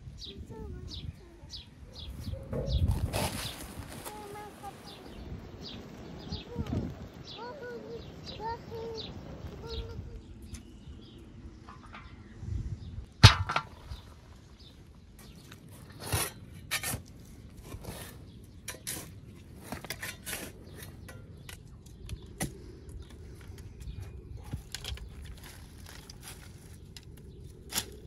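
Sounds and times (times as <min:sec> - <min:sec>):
spade scraping dry soil: 0:02.5 - 0:04.3, 0:15.3 - 0:21.5
soil thrown onto metal pan: 0:13.2 - 0:14.3.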